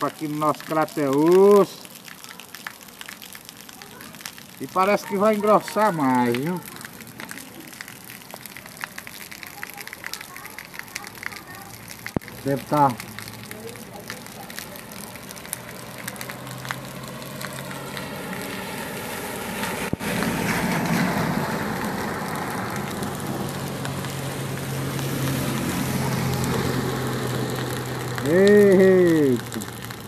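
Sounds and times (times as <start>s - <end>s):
rain patter: 0.0s - 30.0s
tyres swishing through water: 0.0s - 30.0s
car engine humming: 11.5s - 30.0s.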